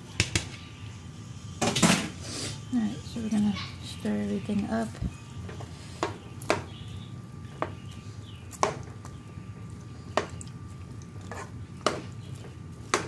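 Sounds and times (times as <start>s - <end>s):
steady low hum: 0.0s - 13.0s
utensil stirring soup: 7.5s - 13.0s.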